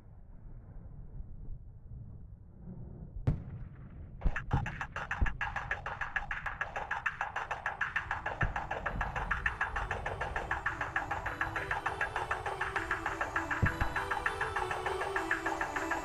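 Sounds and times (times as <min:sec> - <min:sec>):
fast rhythmic pulse: 0:04.3 - 0:16.0
background music: 0:08.0 - 0:16.0.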